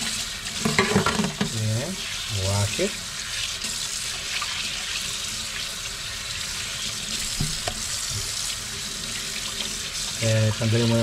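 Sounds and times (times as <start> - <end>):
tap running into metal sink: 0.5 - 1.6, 7.3 - 8.4.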